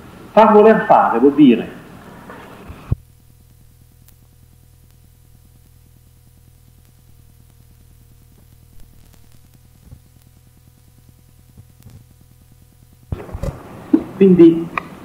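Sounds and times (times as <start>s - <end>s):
electrical hum and hiss: 0.0s - 15.0s
faint clicks: 2.9s - 5.8s, 6.5s - 12.3s.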